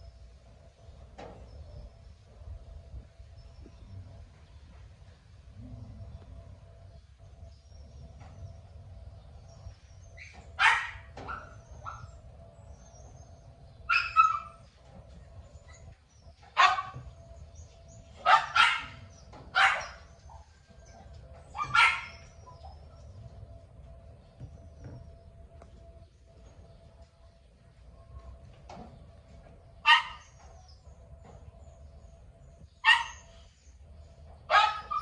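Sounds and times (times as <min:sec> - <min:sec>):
dog barking: 0:10.6 - 0:12.2, 0:13.9 - 0:14.6, 0:16.6 - 0:17.1, 0:18.2 - 0:20.1, 0:21.5 - 0:22.3, 0:29.8 - 0:30.3, 0:32.8 - 0:33.3, 0:34.5 - 0:35.0.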